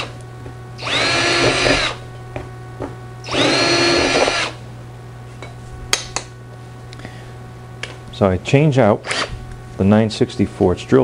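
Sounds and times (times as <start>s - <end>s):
cordless drill drilling into metal: 0.8s - 2.0s, 3.3s - 4.6s.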